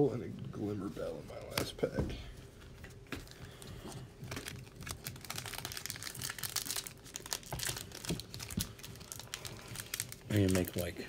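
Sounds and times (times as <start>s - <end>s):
foil wrapper crinkling and tearing: 4.2s - 10.9s.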